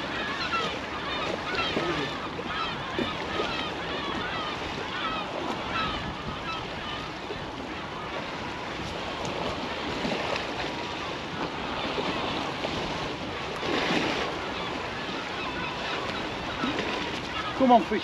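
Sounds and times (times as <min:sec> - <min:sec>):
water washing against bank: 0:00.0 - 0:06.4, 0:08.2 - 0:18.0
wind buffeting microphone: 0:00.0 - 0:18.0.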